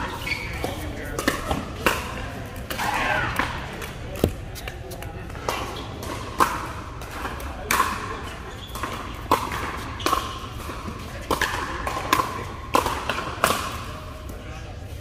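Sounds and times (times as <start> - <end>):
paddles hitting a ball: 0.6 - 8.1.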